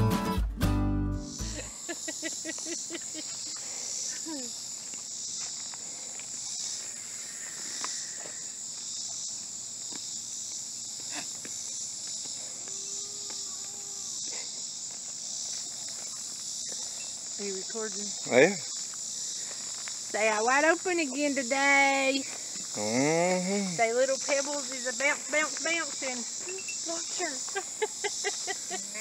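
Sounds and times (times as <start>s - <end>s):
high-pitched insect chorus: 1.2s - 29.0s.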